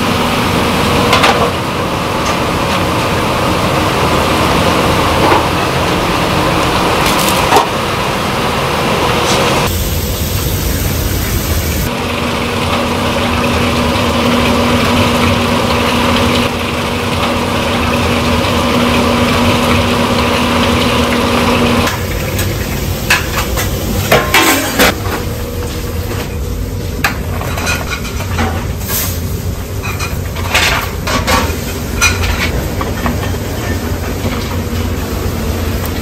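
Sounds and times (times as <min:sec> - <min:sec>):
water pouring into a pot: 0:09.7 - 0:24.9
metal pots clinking: 0:21.9 - 0:25.2, 0:29.8 - 0:34.8.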